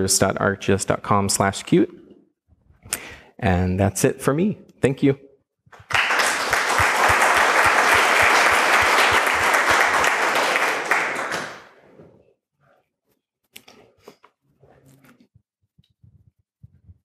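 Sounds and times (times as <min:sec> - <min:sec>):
audience applauding: 0:05.8 - 0:11.8.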